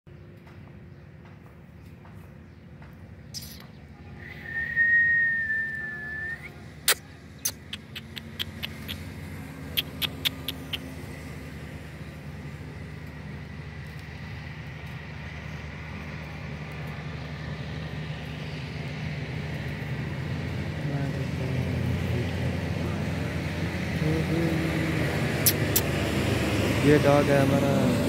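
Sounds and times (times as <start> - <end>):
low engine hum: 0.1 - 28.0
sharp clicks: 6.9 - 9.1, 9.7 - 10.9, 25.4 - 25.9.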